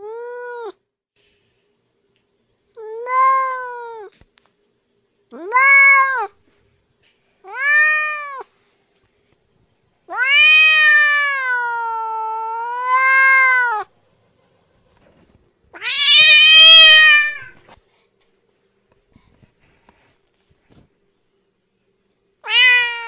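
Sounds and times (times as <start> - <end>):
cat meowing: 2.8 - 4.1, 5.4 - 6.4, 7.4 - 8.5, 10.1 - 13.9, 15.7 - 17.6, 22.4 - 23.0.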